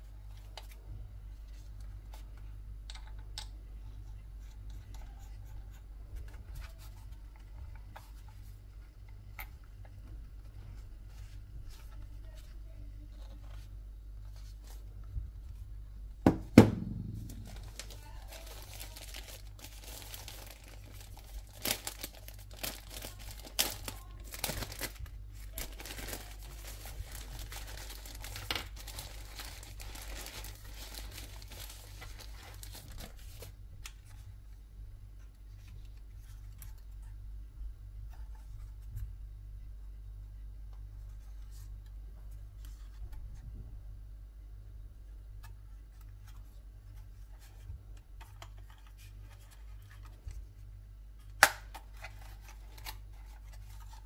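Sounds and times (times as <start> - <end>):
steady low hum: 0.0 - 54.0
loud thumps: 16.2 - 17.9
wrapping crinkling and tearing: 17.2 - 34.2, 51.4 - 54.0.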